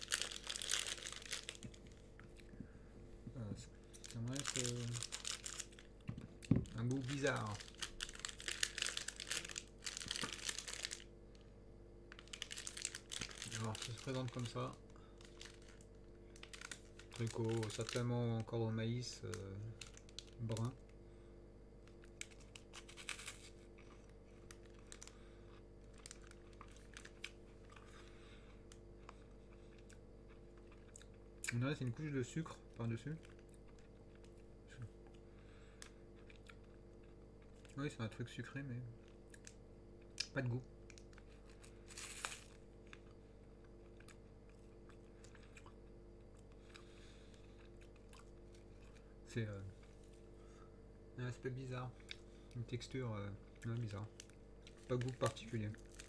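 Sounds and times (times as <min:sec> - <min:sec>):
plastic snack wrapper crinkling: 0:00.0 - 0:02.1, 0:03.9 - 0:11.5, 0:12.1 - 0:18.5, 0:19.1 - 0:20.8, 0:21.9 - 0:28.1, 0:40.2 - 0:49.0, 0:53.6 - 0:56.0
chewing crunches: 0:21.8 - 0:31.6, 0:33.2 - 0:37.8, 0:39.0 - 0:49.1, 0:52.0 - 0:52.6
crunchy snack bite: 0:41.0 - 0:43.2.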